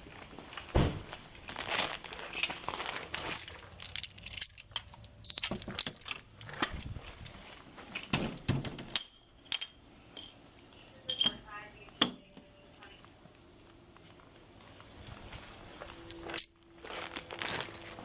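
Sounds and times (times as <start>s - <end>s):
keys jangling: 3.2s - 6.9s, 16.0s - 18.0s.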